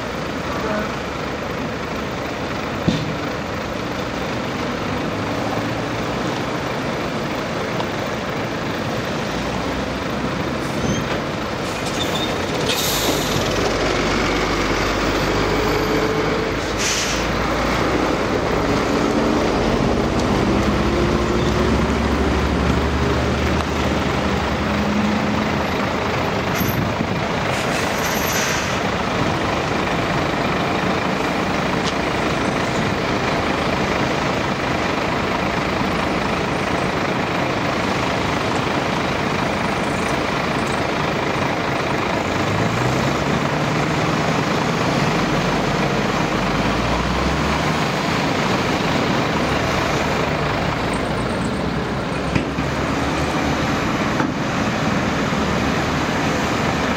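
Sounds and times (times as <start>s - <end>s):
heavy diesel engines droning: 0.0s - 56.9s
short sharp air hisses: 12.7s - 13.4s, 16.6s - 17.4s.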